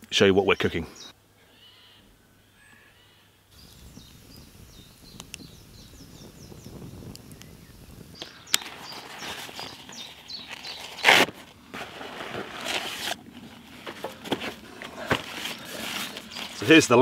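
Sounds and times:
bag and paper rustling: 0:08.6 - 0:17.0.

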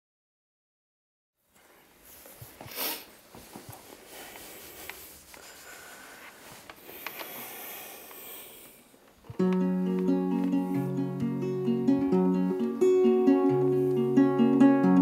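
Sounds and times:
faint clicks and rustles: 0:01.5 - 0:07.4
person sniffing: 0:02.6 - 0:03.2, 0:04.0 - 0:08.9.

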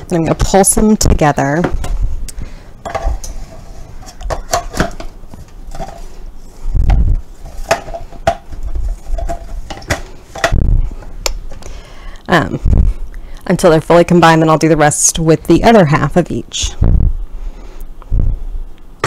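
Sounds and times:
heavy low thumps: 0:12.6 - 0:13.0, 0:16.8 - 0:17.3, 0:18.1 - 0:18.6.

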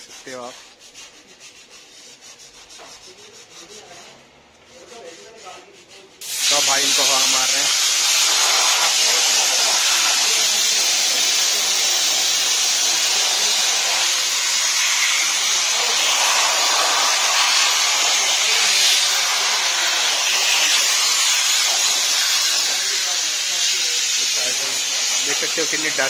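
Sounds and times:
air blow gun hissing: 0:06.2 - 0:26.0.

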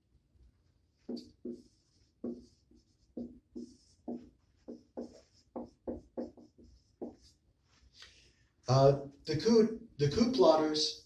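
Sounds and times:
marker squeaking on whiteboard: 0:00.9 - 0:08.0.

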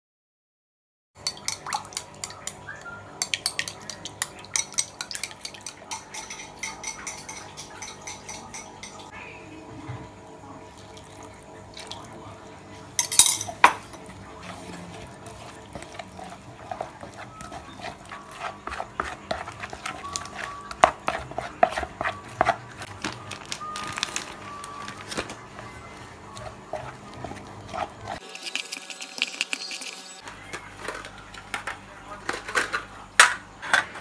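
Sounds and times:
metal spoon knocking glass bowl: 0:04.6 - 0:09.0
wooden spoon stirring thick batter: 0:13.6 - 0:28.2.

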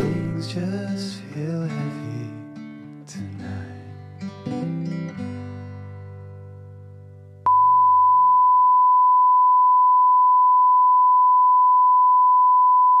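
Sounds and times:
guitar music: 0:00.0 - 0:07.4
steady electronic beep: 0:07.5 - 0:13.0.

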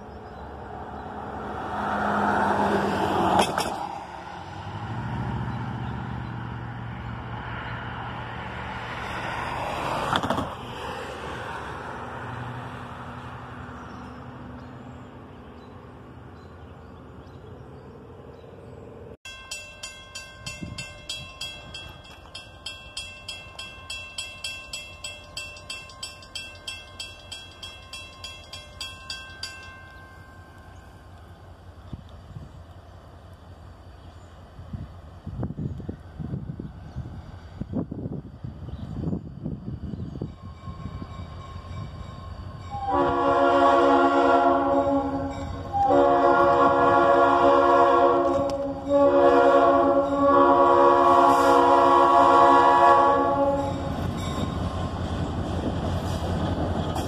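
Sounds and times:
diesel locomotive engine drone: 0:00.0 - 0:57.0
railroad crossing bell ringing: 0:19.2 - 0:31.4, 0:39.4 - 0:55.3.

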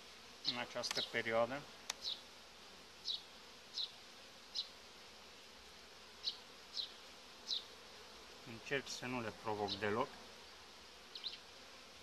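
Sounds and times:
honeybees buzzing: 0:00.0 - 0:12.0.

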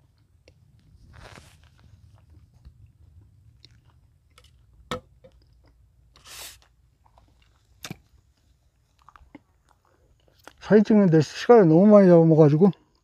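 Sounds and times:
short hissing puff: 0:06.2 - 0:06.6.

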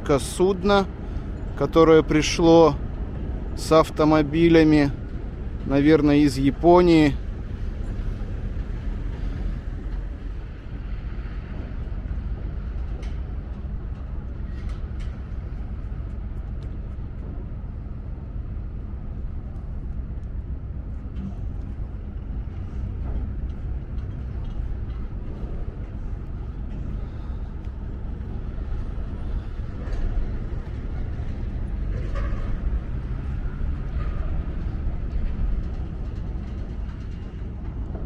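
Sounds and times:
faint constant hum: 0:00.0 - 0:38.0
machinery and traffic rumble: 0:00.0 - 0:38.0
light clanks: 0:11.2 - 0:17.6, 0:19.3 - 0:38.0.

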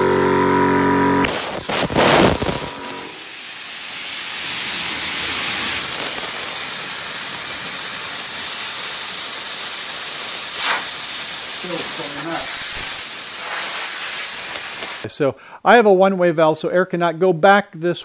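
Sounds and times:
compressed air hissing: 0:01.2 - 0:15.1.

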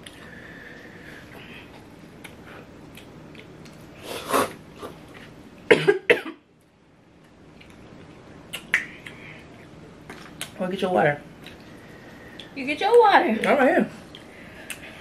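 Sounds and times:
person coughing: 0:05.7 - 0:06.4.

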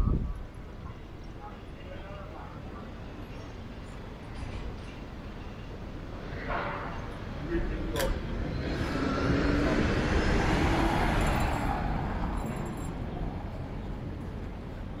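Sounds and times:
motor vehicle passing: 0:08.2 - 0:13.4.

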